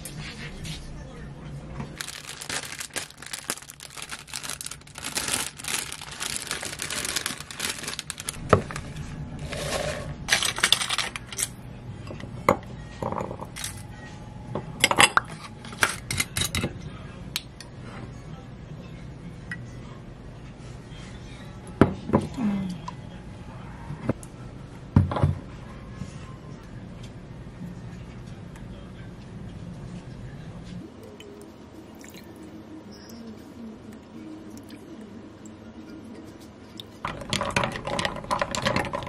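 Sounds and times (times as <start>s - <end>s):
rustling: 2.0s - 11.3s.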